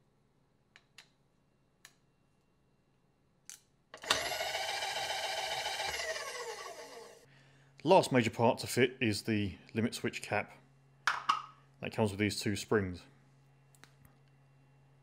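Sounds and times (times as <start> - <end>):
power feed motor whining: 4.0 - 7.2.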